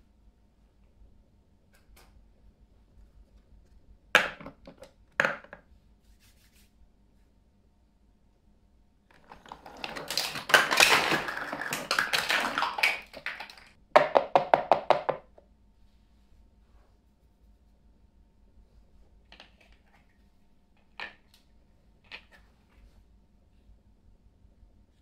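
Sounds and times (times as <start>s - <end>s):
plastic toy cups clattering: 9.1s - 14.2s.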